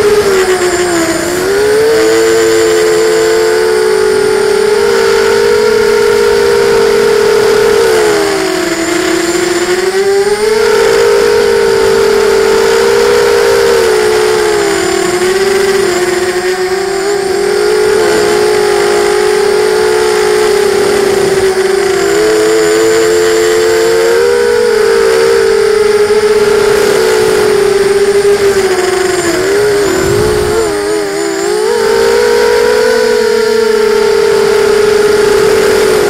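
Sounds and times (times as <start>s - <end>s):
drone motors whining: 0.0s - 36.0s.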